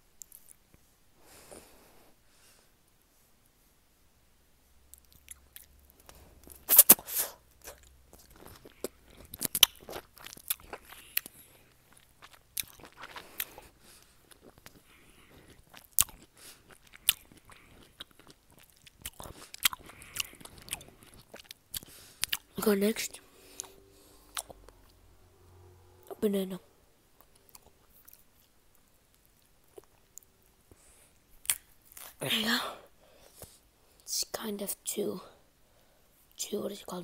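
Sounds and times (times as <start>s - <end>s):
crunchy food chewing: 4.9s - 22.6s, 23.4s - 25.0s, 27.2s - 32.2s.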